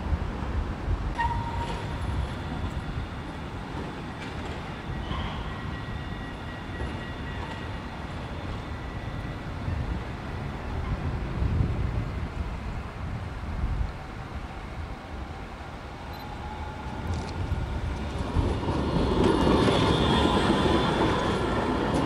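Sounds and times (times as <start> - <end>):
tram rumbling on rails: 0.0 - 22.0
faint high whine: 16.0 - 17.4.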